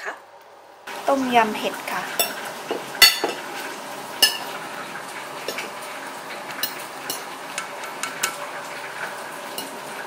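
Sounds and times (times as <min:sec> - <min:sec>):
dishes and cutlery clinking: 0:02.2 - 0:03.5, 0:04.2 - 0:04.5, 0:06.6 - 0:08.4, 0:09.5 - 0:09.8.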